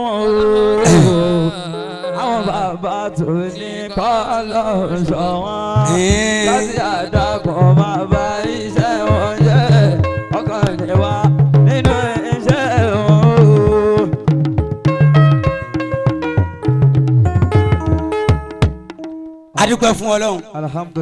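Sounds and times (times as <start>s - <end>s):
solo voice chanting: 0.0s - 14.2s
hand drums: 5.8s - 19.3s.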